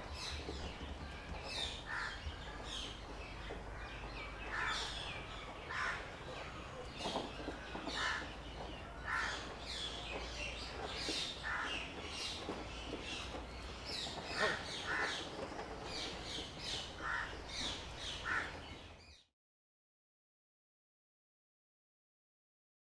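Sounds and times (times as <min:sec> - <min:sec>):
small birds chirping: 0:00.0 - 0:19.3
crows cawing: 0:01.9 - 0:02.3, 0:04.5 - 0:05.0, 0:05.7 - 0:06.1, 0:09.0 - 0:09.5, 0:11.4 - 0:11.9, 0:14.4 - 0:15.2, 0:17.0 - 0:17.4, 0:18.2 - 0:18.6.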